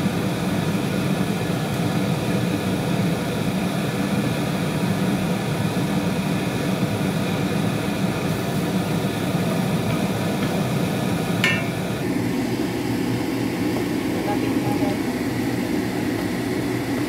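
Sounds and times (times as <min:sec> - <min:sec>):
range hood fan whooshing: 0:00.0 - 0:17.0
short metallic clink: 0:11.4 - 0:11.8.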